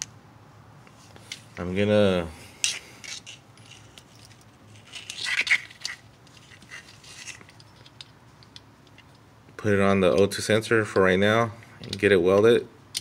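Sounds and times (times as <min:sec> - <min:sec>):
scraping rustle: 0:02.6 - 0:08.1
small handling clicks: 0:11.8 - 0:13.0.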